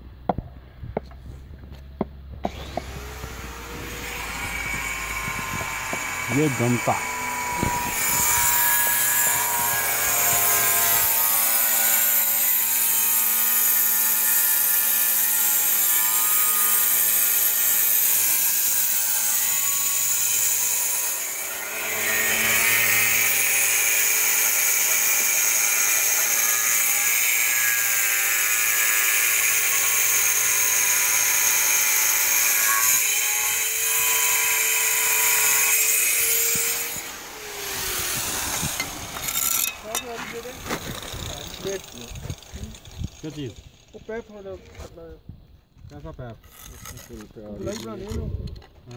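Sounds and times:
power tool motor whine: 0:02.4 - 0:44.0.

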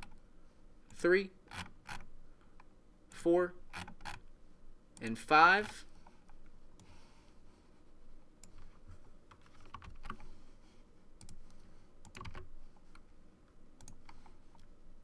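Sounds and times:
keyboard and mouse clicking: 0:09.3 - 0:10.3, 0:11.2 - 0:13.0, 0:13.8 - 0:14.7.

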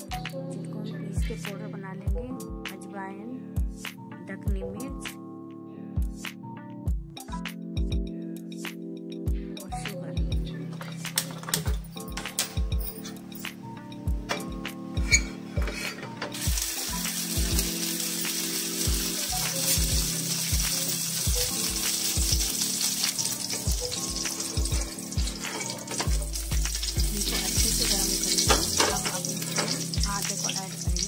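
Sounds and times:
background music with beat: 0:00.0 - 0:00.5, 0:01.1 - 0:03.0, 0:03.6 - 0:31.0
ghee sizzling in a pan: 0:16.3 - 0:31.0.

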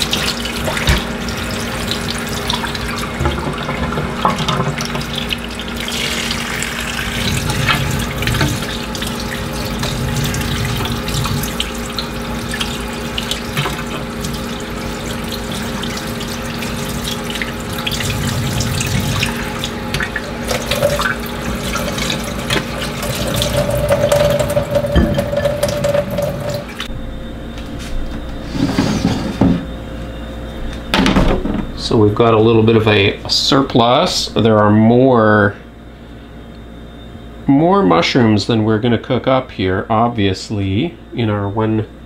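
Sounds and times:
tap running into metal sink: 0:00.1 - 0:01.1, 0:03.2 - 0:05.3, 0:18.0 - 0:26.6.

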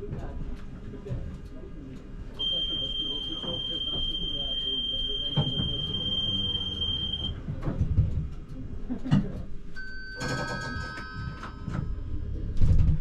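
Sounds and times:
steady high-pitched tone: 0:02.4 - 0:07.4
tram running with low rumble: 0:11.0 - 0:13.0.

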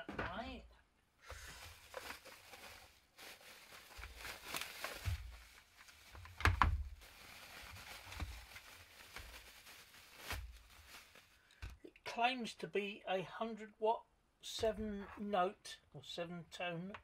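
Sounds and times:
bubble wrap crinkling: 0:01.2 - 0:11.6.

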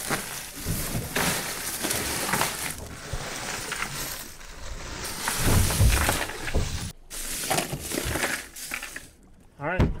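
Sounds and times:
plastic bags crinkling: 0:00.0 - 0:09.2
ice cubes clinking: 0:07.1 - 0:09.2.

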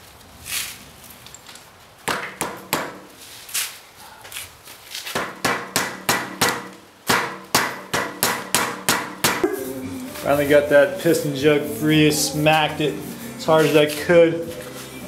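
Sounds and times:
hammer knocking on metal: 0:05.2 - 0:09.5.

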